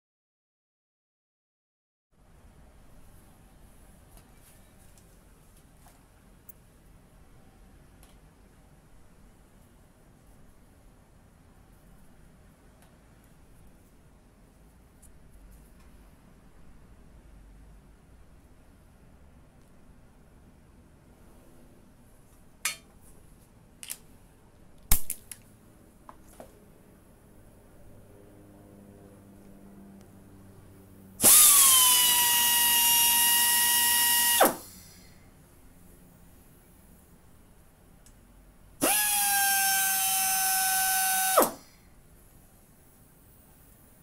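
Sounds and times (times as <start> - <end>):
air grinder high whine: 31.2 - 35.0, 38.8 - 41.6.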